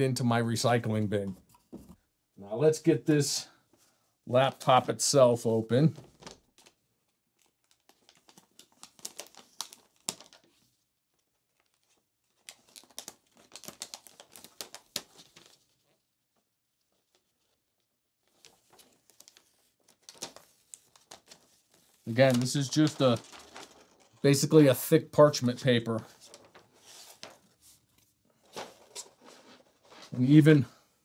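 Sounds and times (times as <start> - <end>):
paper wrapping crinkling: 6.1 - 30.6.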